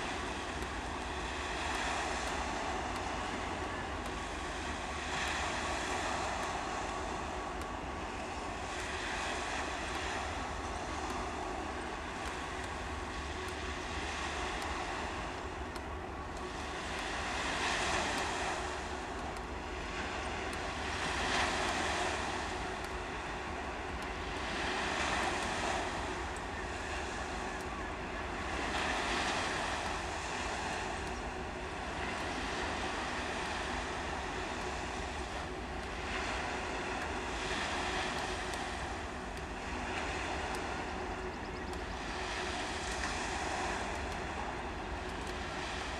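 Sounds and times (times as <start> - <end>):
small waves washing ashore: 0.0 - 45.9.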